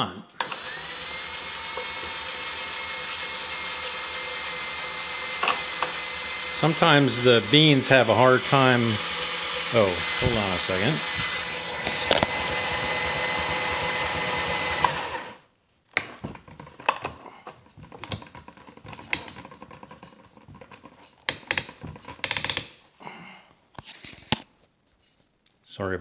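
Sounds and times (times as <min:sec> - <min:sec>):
cordless drill whining: 0:00.4 - 0:15.4
handling clicks and knocks: 0:15.9 - 0:22.7.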